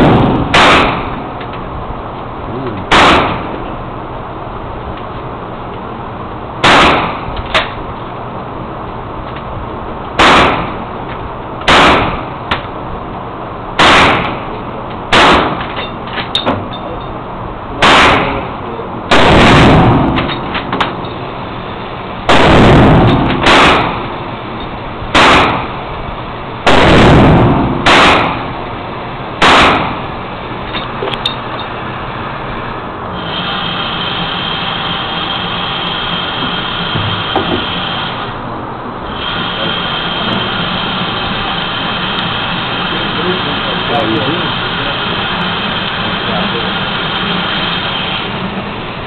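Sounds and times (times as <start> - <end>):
gunshots with booming echo: 0.0 - 1.3, 2.8 - 3.6, 6.6 - 7.3, 10.2 - 10.9, 11.7 - 12.3, 13.8 - 14.5, 15.1 - 15.7, 17.8 - 20.4, 22.3 - 24.2, 25.1 - 25.8, 26.6 - 28.6, 29.4 - 30.1
steady mechanical whir: 0.0 - 49.0.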